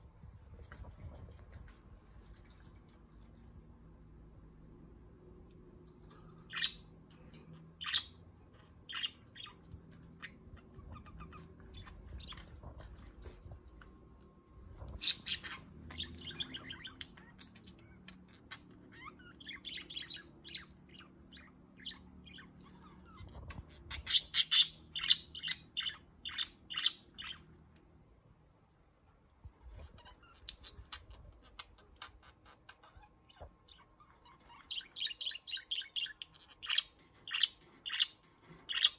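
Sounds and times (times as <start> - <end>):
budgerigars chirping: 14.9 - 27.4, 30.0 - 38.9.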